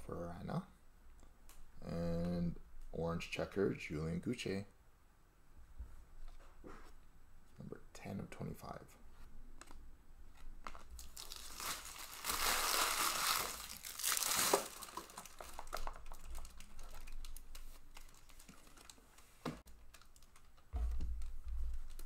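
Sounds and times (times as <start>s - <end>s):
wrapper crinkling: 10.6s - 22.0s
low bump: 20.8s - 22.0s.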